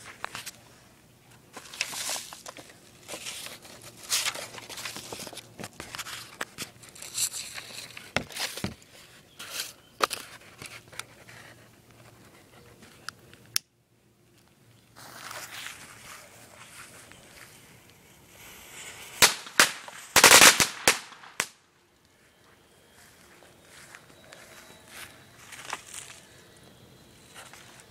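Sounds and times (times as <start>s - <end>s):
paper rustling and crinkling: 1.5s - 13.1s, 15.0s - 17.6s, 23.8s - 26.4s.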